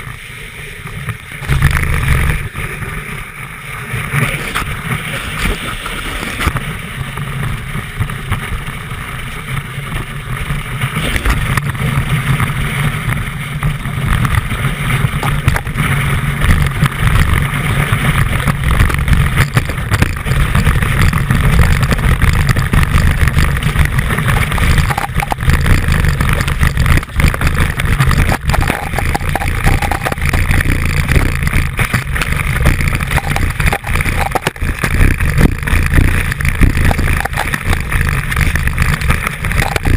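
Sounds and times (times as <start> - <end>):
ski rumbling and hissing on snow: 0.0 - 39.9.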